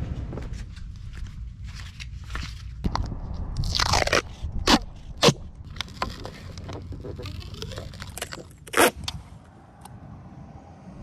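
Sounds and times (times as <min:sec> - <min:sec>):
tape handling crackles: 0:00.6 - 0:09.2
duct tape ripping: 0:03.6 - 0:09.2.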